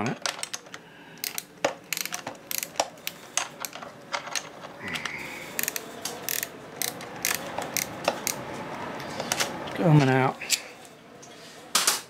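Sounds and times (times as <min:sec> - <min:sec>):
ratchet wrench clicking: 0:01.2 - 0:03.2, 0:05.5 - 0:08.4.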